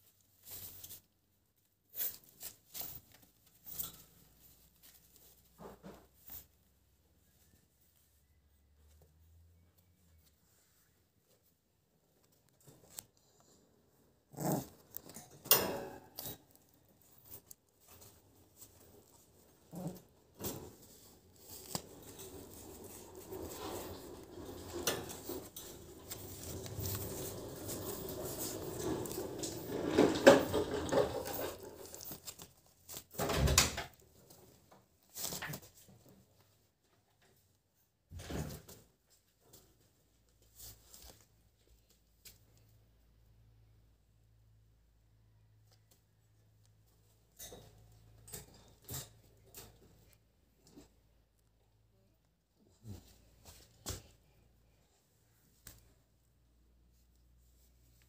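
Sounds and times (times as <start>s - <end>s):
puppies rustling in wire crate: 0.0s - 6.6s, 14.3s - 36.6s, 38.2s - 42.7s, 46.9s - 51.0s
puppy chewing metal crate bars: 14.4s - 33.0s.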